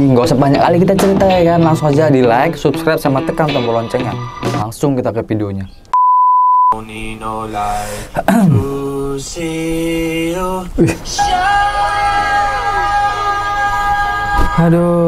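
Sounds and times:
test-tone beep: 0:06.0 - 0:06.8
music with sung notes: 0:11.2 - 0:15.0.

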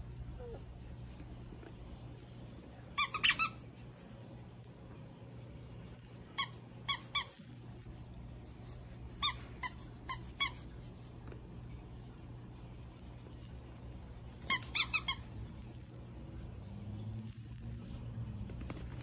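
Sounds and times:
steady low hum: 0:00.0 - 0:19.0
puppy whimpering: 0:00.3 - 0:01.0.

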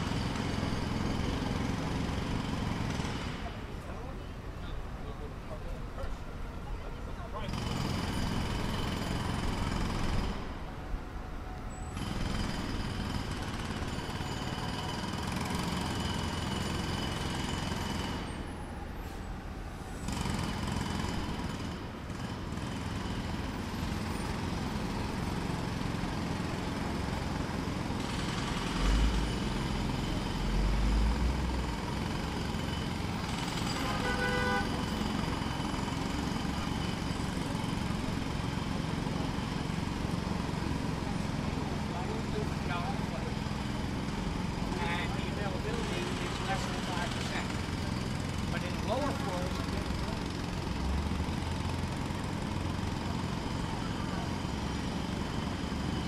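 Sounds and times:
distant jackhammer hammering: 0:00.0 - 0:03.8, 0:07.4 - 0:10.7, 0:12.0 - 0:18.8, 0:20.0 - 0:56.0
street traffic noise: 0:00.0 - 0:56.0
vehicle horn: 0:33.7 - 0:34.9.

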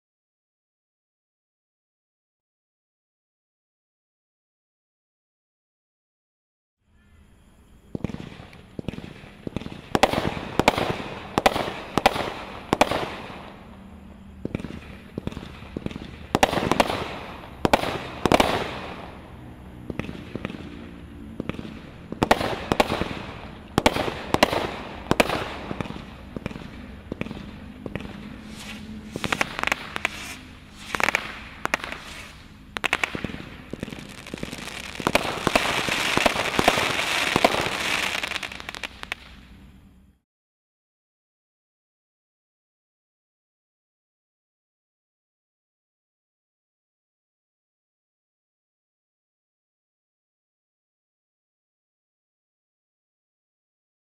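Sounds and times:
firework bursts crackling: 0:08.0 - 0:39.6
firework launch bangs: 0:14.4 - 0:19.2, 0:21.4 - 0:39.4.

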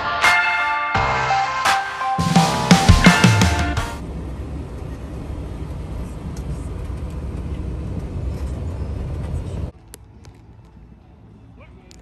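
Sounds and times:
van engine and road rumble: 0:04.0 - 0:12.0.

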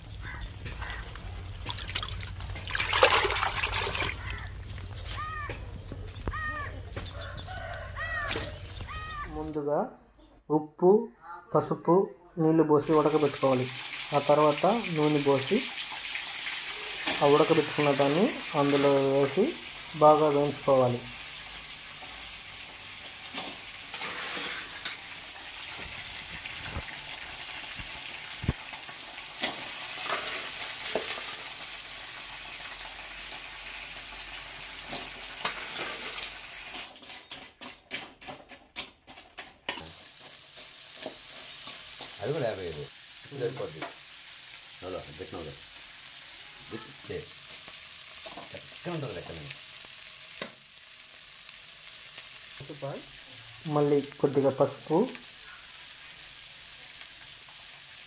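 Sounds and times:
crab sizzling in hot oil: 0:00.0 - 0:05.4, 0:12.8 - 0:58.0
spoon scraping a pan: 0:23.3 - 0:25.1, 0:34.9 - 0:42.2.

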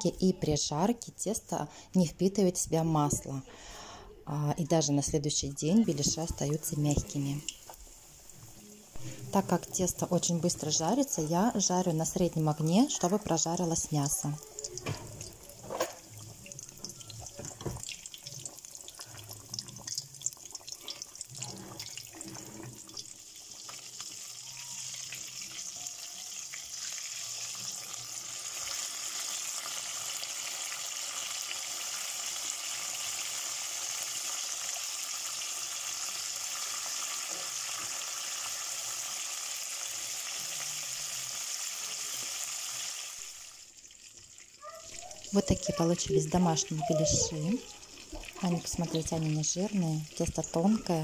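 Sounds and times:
deep-frying sizzling hiss: 0:05.8 - 0:44.6
oil crackles: 0:12.8 - 0:25.8.

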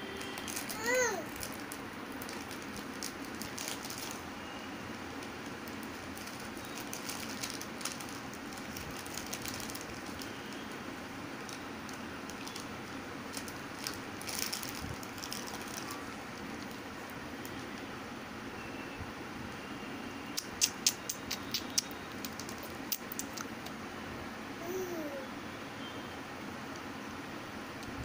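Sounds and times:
plastic snack packet crinkling: 0:00.2 - 0:04.2, 0:05.2 - 0:10.7, 0:11.4 - 0:12.7, 0:13.3 - 0:17.6.

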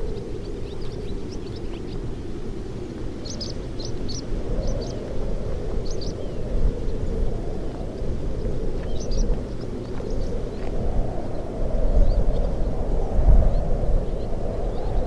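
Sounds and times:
swallows twittering: 0:00.0 - 0:12.7
wind whistling through shack: 0:00.0 - 0:15.0.

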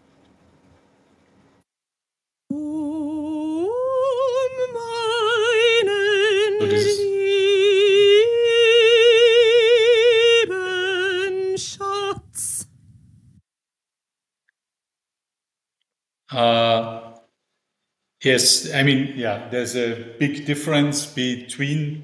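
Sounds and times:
woman singing opera: 0:02.5 - 0:12.6.

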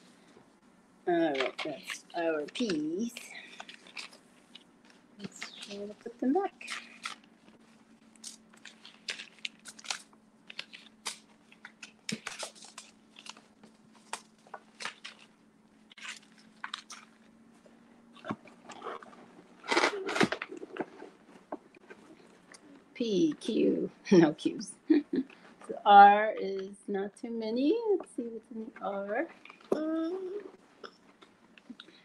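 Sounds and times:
faint steady hum: 0:00.0 - 0:32.0
paper packets rustling and crinkling: 0:01.3 - 0:22.6.

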